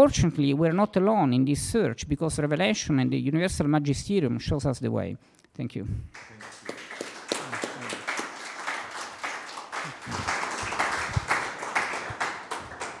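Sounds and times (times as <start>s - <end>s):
audience applauding: 6.2s - 13.0s.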